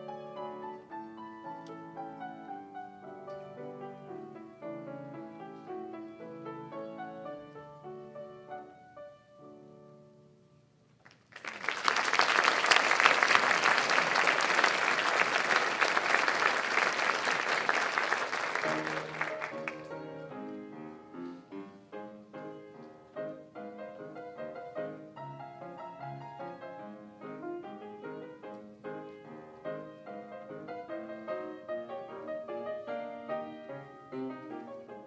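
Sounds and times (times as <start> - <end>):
solo piano playing: 0.0 - 10.6, 18.4 - 35.0
audience applauding: 11.0 - 20.0.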